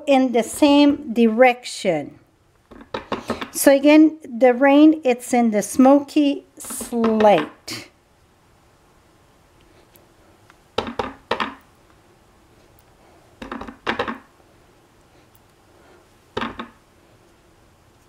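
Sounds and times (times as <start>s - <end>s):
rubber stamp knocking on table: 10.8s - 11.6s, 13.4s - 14.3s, 16.4s - 16.8s.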